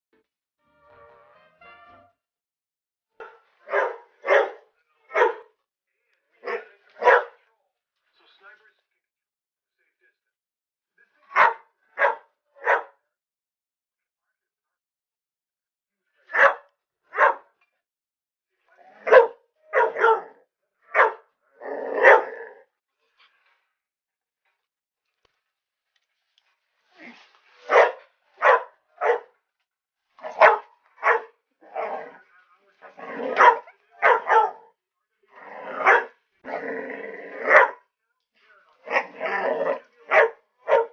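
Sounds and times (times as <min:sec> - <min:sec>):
dog barking: 0:03.2 - 0:05.5, 0:06.4 - 0:07.4, 0:11.3 - 0:13.0, 0:16.3 - 0:17.5, 0:18.9 - 0:22.6, 0:27.7 - 0:29.4, 0:30.2 - 0:32.2, 0:32.8 - 0:34.7, 0:35.7 - 0:36.2, 0:37.4 - 0:37.8, 0:38.8 - 0:40.9.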